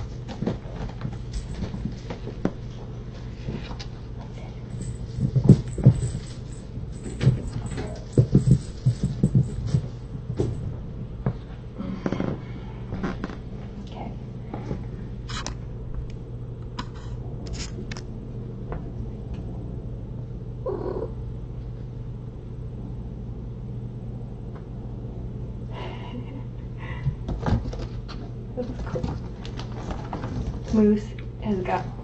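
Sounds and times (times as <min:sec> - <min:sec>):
cat purring: 0:20.6 - 0:21.3.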